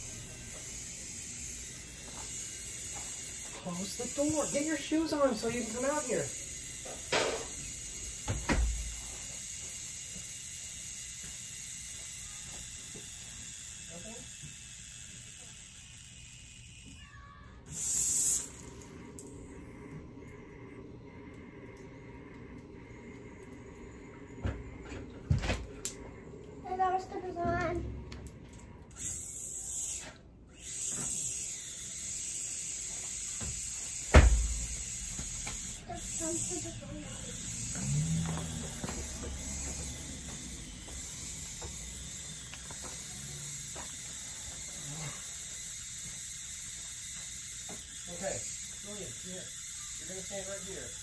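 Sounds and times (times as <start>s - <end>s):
water spraying from garden hose: 0.0s - 16.4s, 17.7s - 19.4s, 29.0s - 51.0s
loud thump: 34.1s - 34.7s.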